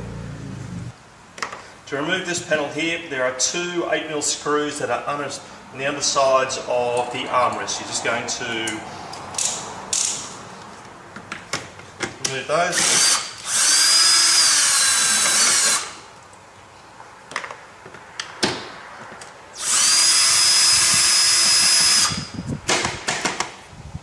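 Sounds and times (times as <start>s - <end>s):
cordless drill whining: 12.7s - 16.0s, 19.6s - 22.3s.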